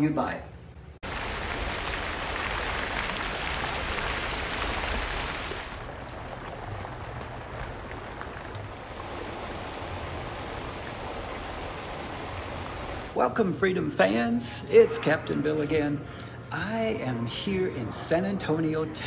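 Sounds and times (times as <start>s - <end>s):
fountain water splashing: 1.0s - 13.2s.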